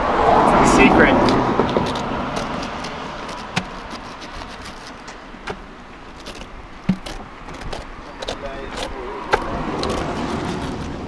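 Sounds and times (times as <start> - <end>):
passing car hum: 0.0 - 11.0
knife slicing pineapple rind: 0.8 - 11.0.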